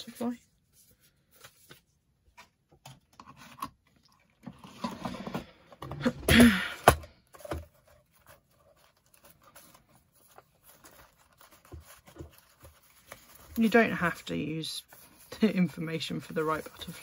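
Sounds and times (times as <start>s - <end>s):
rustling and handling: 0.0s - 5.9s, 7.1s - 17.0s.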